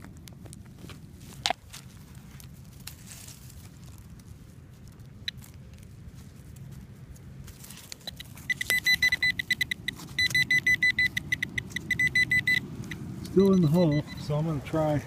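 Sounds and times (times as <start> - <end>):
faint handling noise: 0.0 - 10.5
metal detector pinpointer beeping: 5.2 - 5.5, 7.8 - 14.7.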